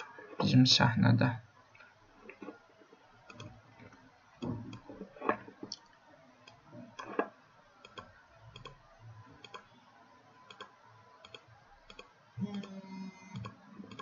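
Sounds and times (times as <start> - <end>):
computer mouse clicking: 3.3 - 4.0, 6.4 - 8.8, 9.4 - 9.7, 10.5 - 14.0.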